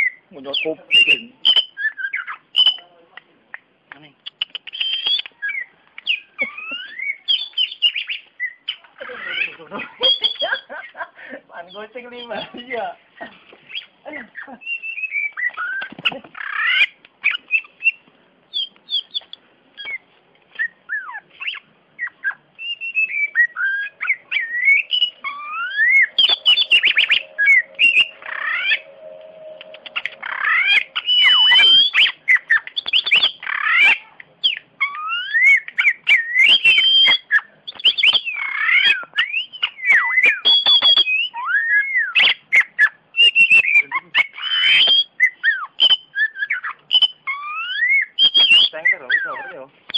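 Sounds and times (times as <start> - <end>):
bird singing whistled notes: 0.0 - 2.9, 4.2 - 10.7, 14.6 - 15.9, 16.5 - 49.9
bird clicking notes: 2.6 - 5.4, 24.9 - 33.4.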